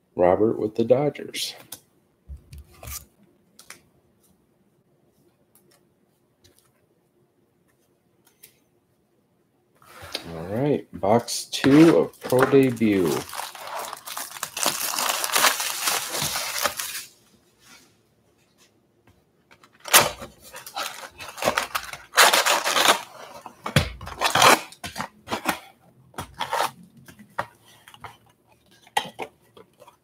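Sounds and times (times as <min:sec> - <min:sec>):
cardboard box ripping: 0:11.6 - 0:17.1, 0:19.8 - 0:23.1
foil packs crinkling: 0:11.6 - 0:17.2, 0:19.8 - 0:25.6.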